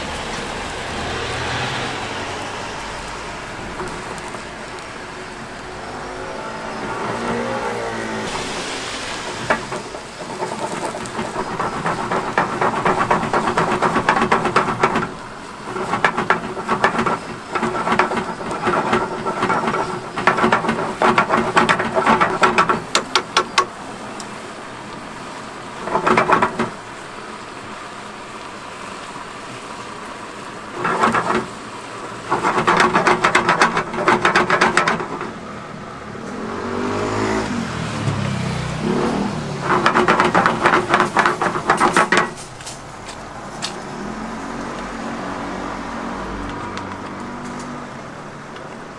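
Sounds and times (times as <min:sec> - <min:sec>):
sauce bubbling and spitting in pan: 0:07.0 - 0:23.6.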